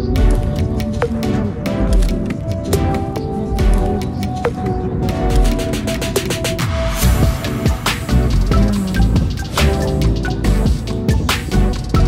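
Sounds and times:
sharp percussive ticks: 0.1s - 6.6s
deep bass swell: 7.0s - 10.7s.

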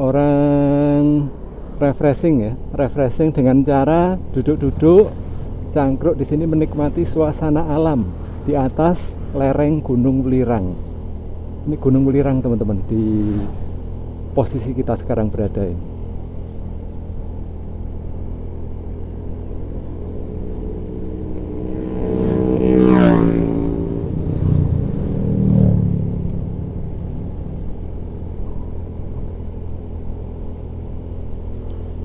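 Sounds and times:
vehicle engine and road noise: 0.0s - 32.0s
engine revving up: 12.8s - 13.7s, 20.9s - 26.7s.

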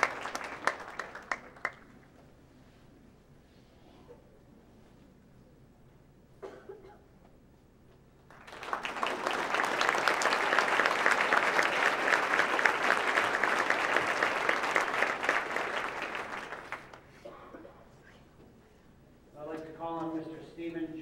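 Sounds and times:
audience applauding: 0.0s - 2.0s, 8.3s - 17.1s.

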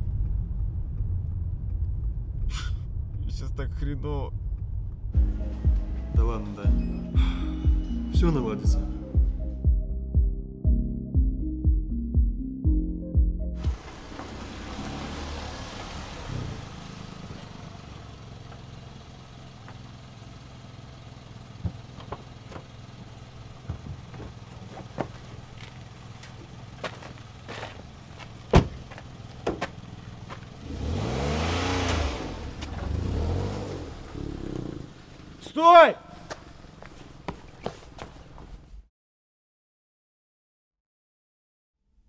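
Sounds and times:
car engine idling: 13.5s - 37.6s
car engine revving: 13.6s - 35.6s
car door shutting: 21.5s - 25.4s, 28.4s - 29.8s.

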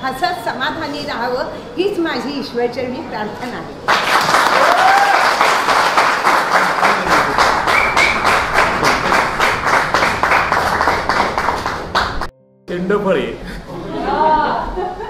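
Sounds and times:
audience applauding: 3.9s - 12.3s.

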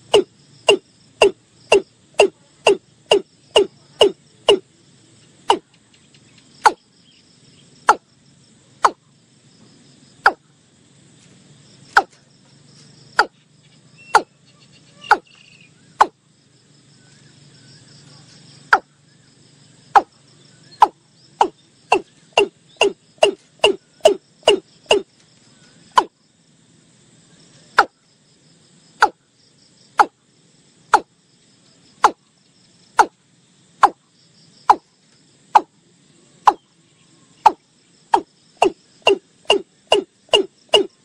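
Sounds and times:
bird calling hollow notes: 0.0s - 4.6s, 10.2s - 10.4s, 14.0s - 16.2s, 20.7s - 25.1s, 29.0s - 29.2s, 36.5s - 36.7s, 37.4s - 37.6s, 38.2s - 41.0s.

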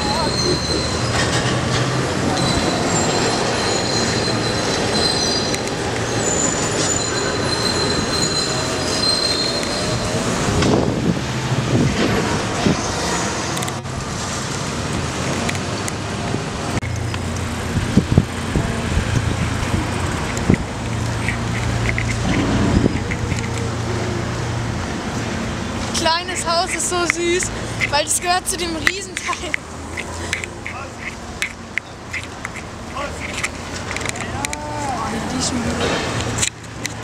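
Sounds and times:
rail wheels squealing: 0.0s - 10.8s
rumble of running rail car: 0.0s - 37.0s
street traffic: 0.0s - 37.0s.

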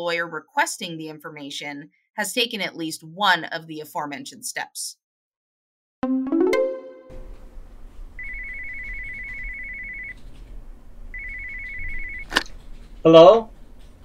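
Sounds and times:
brief tonal sting: 6.0s - 7.6s
telephone ringing: 8.2s - 10.2s, 11.1s - 12.3s.

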